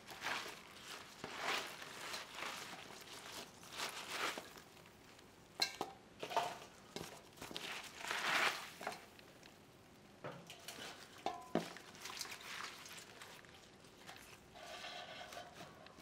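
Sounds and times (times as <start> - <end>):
wet onions rustling in bowl: 0.0 - 9.7, 10.4 - 16.0
clink against metal bowl: 10.5 - 11.5.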